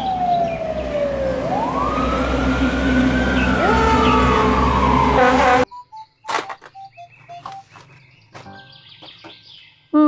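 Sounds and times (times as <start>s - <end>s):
engine rumble: 0.0s - 5.2s
fire engine siren wailing: 0.0s - 5.7s
traffic: 0.0s - 5.7s, 6.3s - 9.6s.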